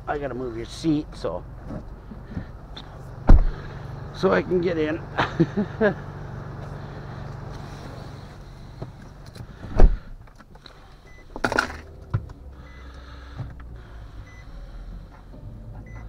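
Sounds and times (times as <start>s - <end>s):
low steady hum: 0.0s - 16.0s
car door thumping shut: 3.3s - 3.6s
faint dashboard chime beeps: 11.1s - 11.3s, 12.6s - 12.8s, 14.2s - 14.5s, 15.8s - 16.0s.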